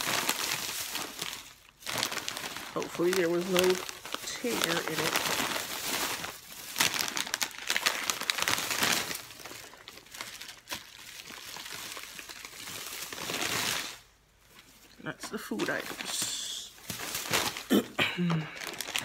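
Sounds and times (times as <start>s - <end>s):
plastic bags crinkling: 0.0s - 19.0s.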